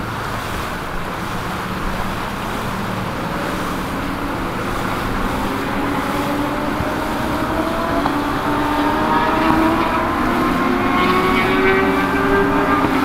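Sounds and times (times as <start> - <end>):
engines running: 0.0 - 13.0.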